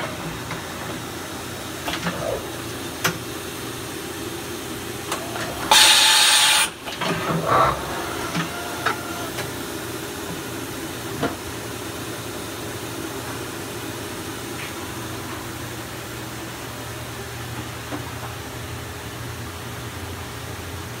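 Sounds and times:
machining center humming: 0:00.0 - 0:17.5
hiss of air: 0:05.7 - 0:06.8.

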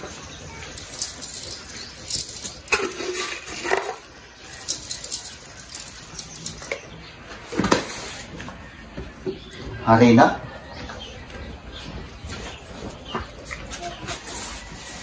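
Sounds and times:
utensils clinking on bowl: 0:00.0 - 0:06.9.

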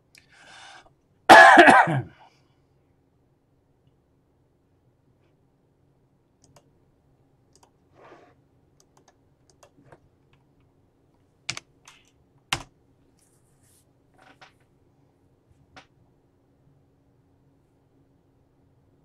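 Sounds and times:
keyboard keys clicking: 0:08.8 - 0:10.0.

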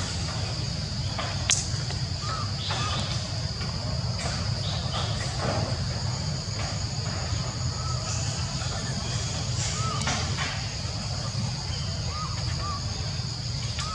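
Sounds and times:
high insect drone: 0:00.0 - 0:13.9.

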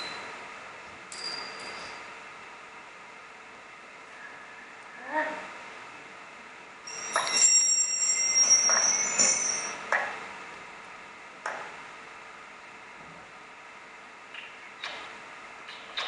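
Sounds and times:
high-pitched ringing tones: 0:01.1 - 0:02.2, 0:06.8 - 0:09.8.

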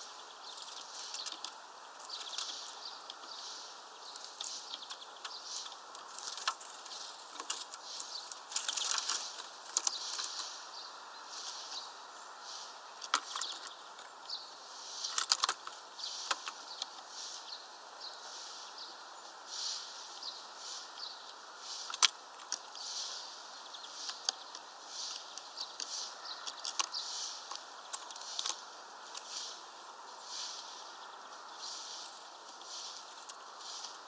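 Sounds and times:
steady outdoor hiss: 0:00.0 - 0:34.0
soft rustling puffs: 0:27.0 - 0:34.0.

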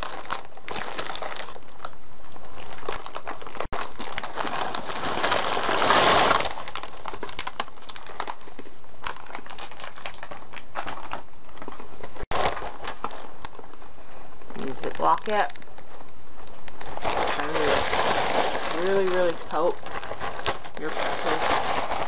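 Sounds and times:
plastic bag crinkling: 0:00.0 - 0:22.0
pretzels rattling into bag: 0:09.0 - 0:11.2, 0:16.8 - 0:22.0.

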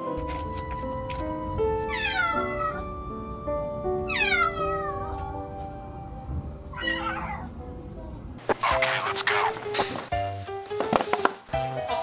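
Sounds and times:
background music sustained notes: 0:00.0 - 0:12.0
cat meowing: 0:01.8 - 0:02.9, 0:04.0 - 0:05.4, 0:06.7 - 0:07.5.

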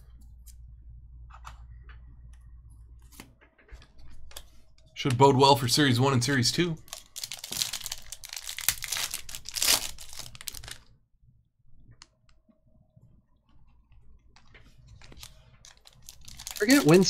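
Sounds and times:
wrapper tearing and crinkling: 0:06.8 - 0:10.9, 0:15.0 - 0:17.0.

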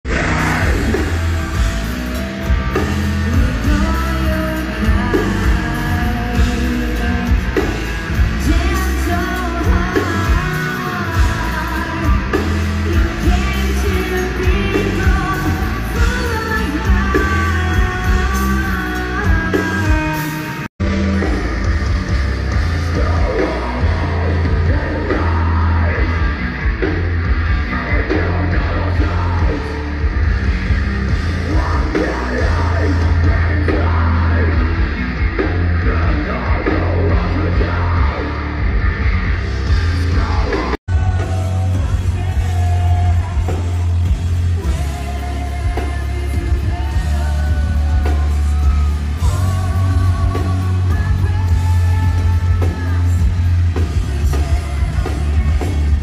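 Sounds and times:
bass guitar: 0:00.0 - 0:56.0
drums: 0:00.0 - 0:56.0
live heavy metal band: 0:00.0 - 0:56.0
woman singing: 0:03.0 - 0:20.7, 0:44.6 - 0:56.0.

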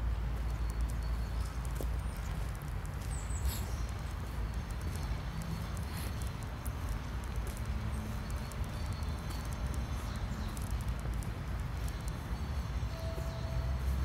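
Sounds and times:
footsteps on paved path: 0:00.0 - 0:14.0
steady low rumble: 0:00.0 - 0:14.0
brief steady tone: 0:12.9 - 0:13.8.

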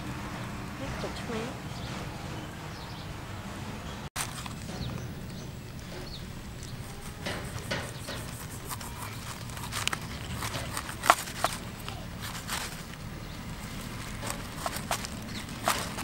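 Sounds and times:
knife cutting lime on board: 0:06.8 - 0:12.4.

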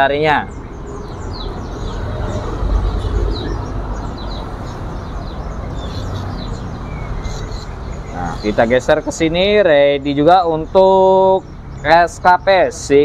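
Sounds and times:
caged songbirds chirping: 0:00.0 - 0:13.0.

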